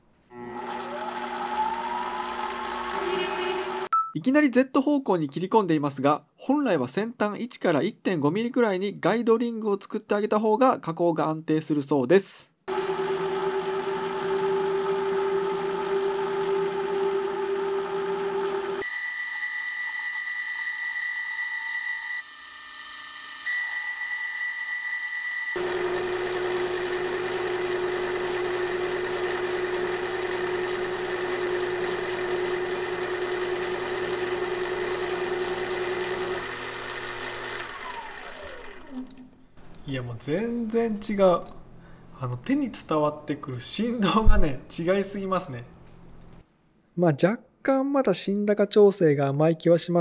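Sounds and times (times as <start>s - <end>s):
lathe motor whine: 0.3s - 3.9s, 12.7s - 39.2s
tool cutting metal pipe: 2.3s - 3.9s.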